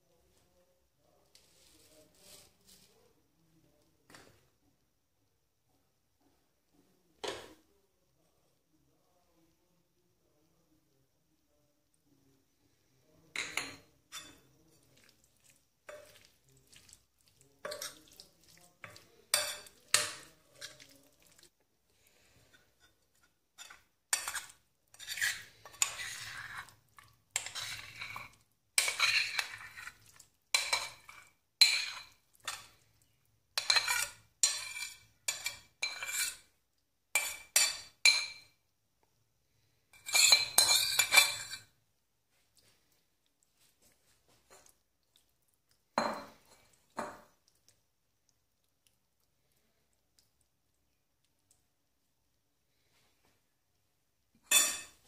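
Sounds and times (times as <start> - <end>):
metal spoon clinking on glass: 18.8 - 20.7, 40.0 - 41.7, 54.5 - 55.0.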